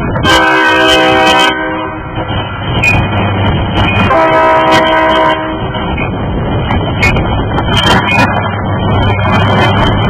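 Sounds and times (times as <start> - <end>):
low rumble of train: 0.0 - 10.0
locomotive air horn blasts: 0.2 - 2.2, 4.0 - 5.8.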